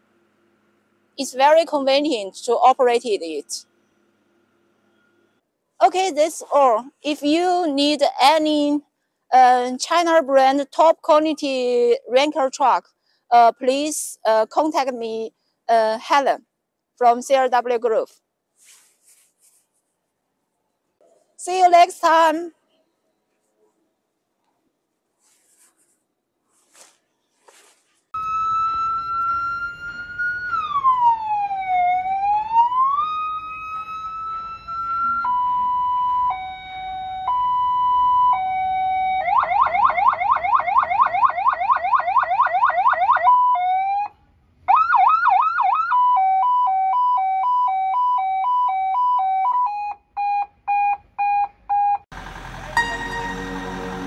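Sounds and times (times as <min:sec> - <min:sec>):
electronic siren wailing: 0:28.2 - 0:44.1, 0:52.5 - 0:54.0.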